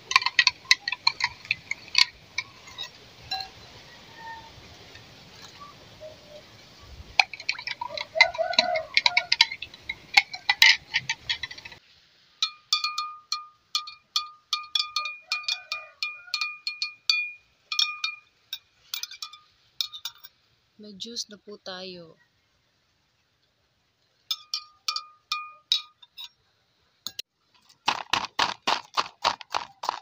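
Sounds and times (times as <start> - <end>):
spoon clinking in glass jar: 0.0 - 5.7, 7.2 - 11.8, 12.4 - 20.3, 24.3 - 26.4
background hiss: 0.0 - 15.0, 16.6 - 27.9.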